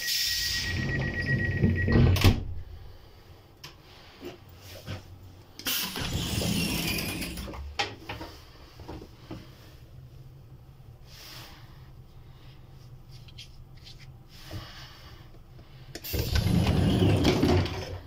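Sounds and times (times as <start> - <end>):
high steady beep: 0.0 - 2.2
sliding door opening: 5.7 - 7.6, 16.1 - 18.0.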